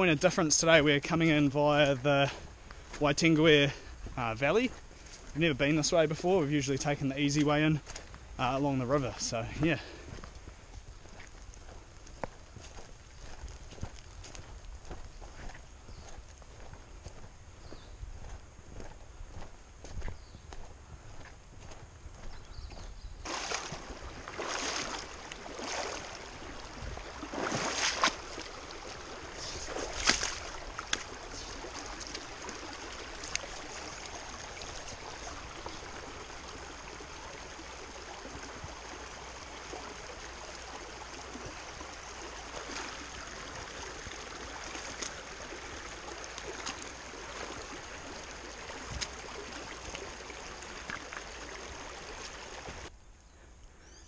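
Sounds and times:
rocky stream running: 0.0 - 52.9
splashing footsteps in water: 4.0 - 52.9.

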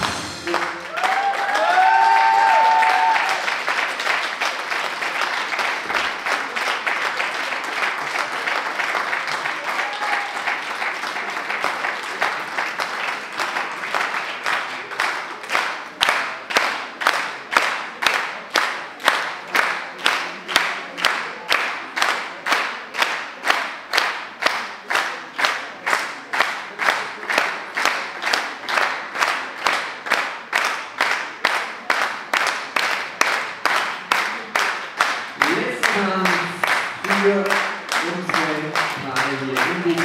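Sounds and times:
dance music: 0.0 - 1.3, 35.4 - 40.0
audience applauding: 0.0 - 40.0
clapping in unison: 0.0 - 40.0.

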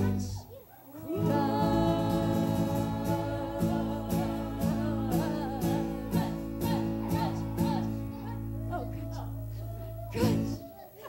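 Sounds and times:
strummed guitars: 0.0 - 0.4, 1.0 - 10.6
people singing: 0.0 - 10.7.

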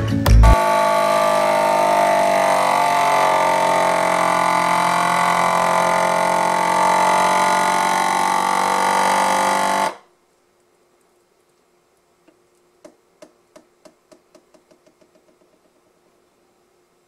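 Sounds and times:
vacuum sealer pump humming: 0.4 - 10.0.

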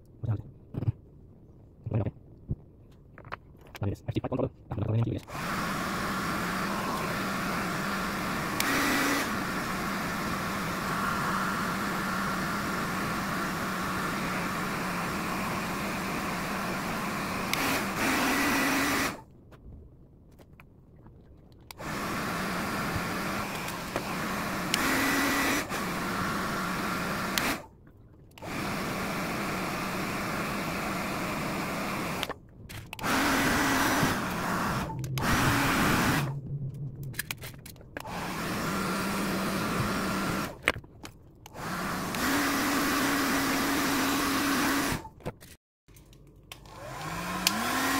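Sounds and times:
hair dryer blowing: 5.3 - 19.2, 21.8 - 27.7, 28.4 - 32.4, 33.0 - 37.3, 38.0 - 40.6, 41.6 - 45.1, 46.7 - 47.9.

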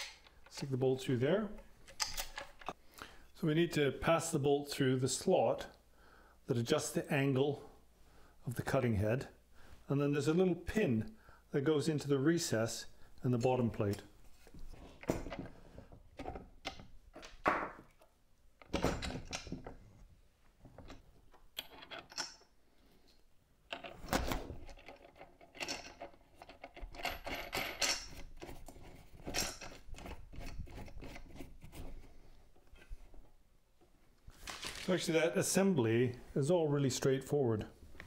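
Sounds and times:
clinks of parts and tools: 20.6 - 22.6, 23.7 - 28.6, 29.2 - 30.6.

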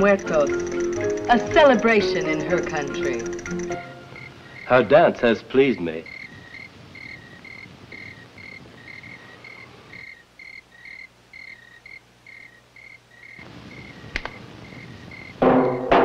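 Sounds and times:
crickets chirping: 0.0 - 15.4
film soundtrack hiss: 0.0 - 16.0
sharp click: 14.2 - 14.4.

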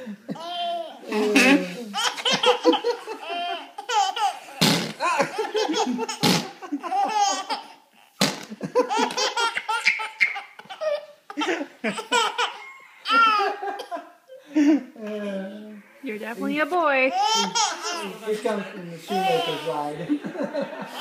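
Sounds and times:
baby laughing: 0.3 - 14.1, 17.1 - 18.2.

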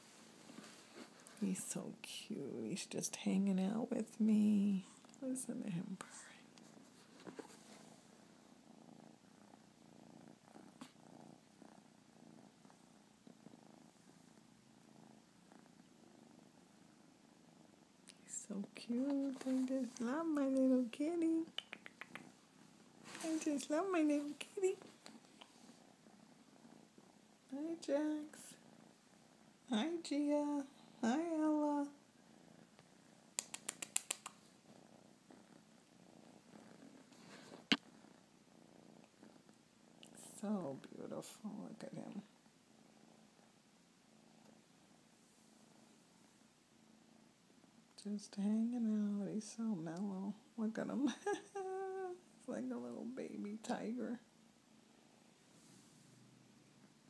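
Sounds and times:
kitten purring: 0.0 - 57.0
sharp clicks: 21.5 - 22.3, 33.4 - 34.4.

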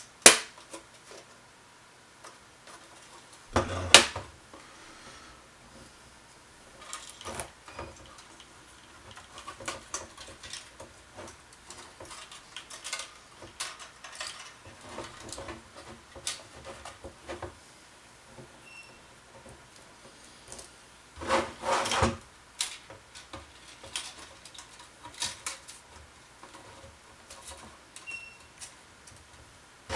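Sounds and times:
plastic parts clicking and scraping: 6.7 - 17.6, 19.3 - 29.9.

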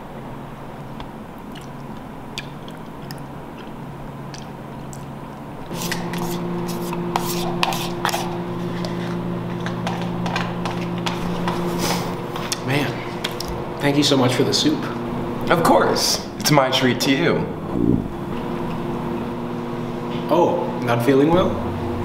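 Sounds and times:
steady low hum: 0.0 - 22.0
eating sounds: 1.4 - 13.6
plastic spoon scraping in a cup: 5.7 - 12.1.

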